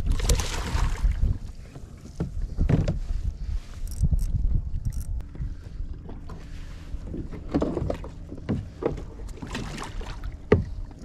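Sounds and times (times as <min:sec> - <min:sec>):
water splashes: 0:00.0 - 0:01.7, 0:07.3 - 0:11.0
knocks and clunks on plastic kayak: 0:00.1 - 0:03.2, 0:07.1 - 0:11.0.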